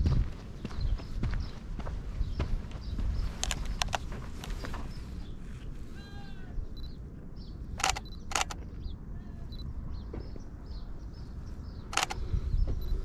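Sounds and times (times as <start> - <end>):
camera shutter clack: 7.8 - 8.6, 11.9 - 12.2.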